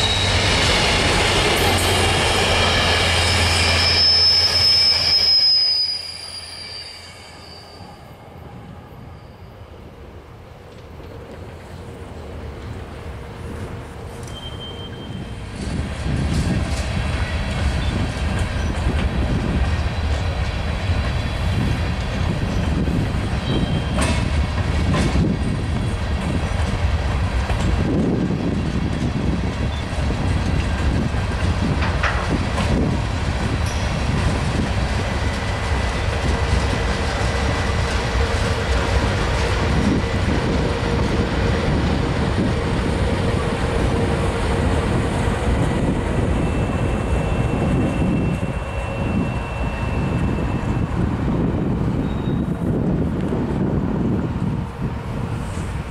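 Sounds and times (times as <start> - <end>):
diesel locomotive passing: 0.0 - 55.9
freight train rolling on rails: 0.0 - 55.9
wheels clickety-clack: 21.8 - 41.6.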